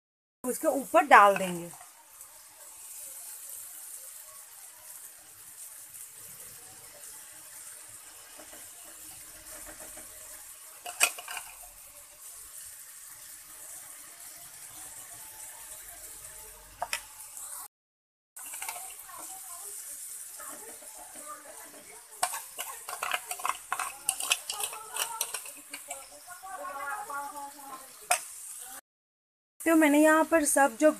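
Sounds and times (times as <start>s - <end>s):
chicken sizzling in oil: 0.4s - 17.7s, 18.4s - 28.8s, 29.6s - 30.9s
steel spoon clinking: 18.4s - 19.0s, 22.2s - 26.3s.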